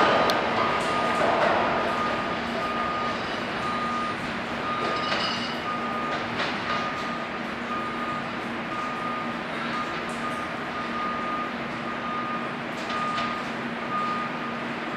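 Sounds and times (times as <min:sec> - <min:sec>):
subway train rumbling: 0:00.0 - 0:07.7.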